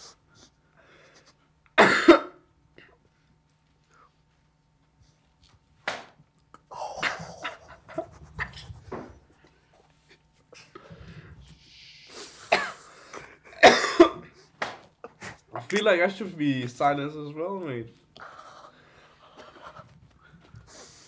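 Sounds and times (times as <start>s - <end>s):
sharp smack: 5.9s - 6.2s, 14.6s - 14.8s
stifled laughter: 6.8s - 8.9s, 14.2s - 15.6s.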